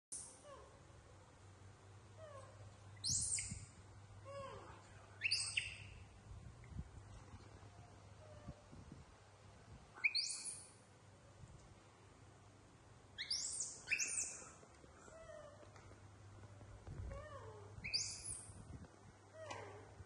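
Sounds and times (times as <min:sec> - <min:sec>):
baby monkey squealing: 0:03.0 - 0:03.6, 0:05.2 - 0:05.9, 0:10.0 - 0:10.6, 0:13.2 - 0:14.4, 0:17.8 - 0:18.5.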